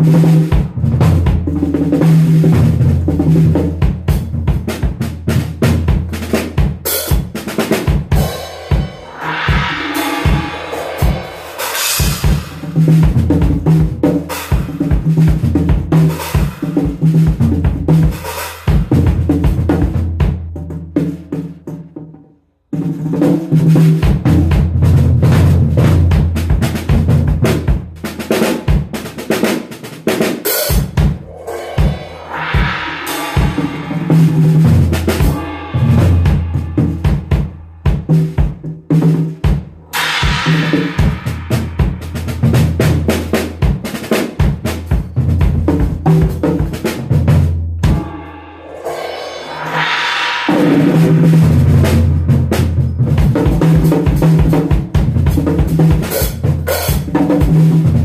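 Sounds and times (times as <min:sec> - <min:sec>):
drum kit playing: 0:00.0 - 0:22.1, 0:22.8 - 0:58.0
cymbal crashes: 0:08.2 - 0:12.8, 0:31.0 - 0:37.7, 0:39.8 - 0:42.4, 0:47.8 - 0:52.2.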